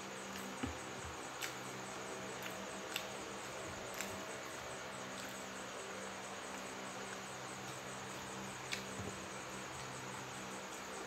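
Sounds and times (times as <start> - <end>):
faint hiss and low hum: 0.0 - 11.0
chewing clicks: 2.4 - 3.2.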